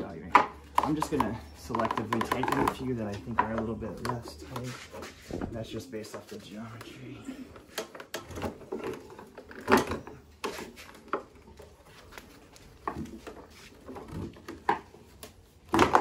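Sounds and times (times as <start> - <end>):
wooden knocks and clicks of sticks: 0.3 - 4.8.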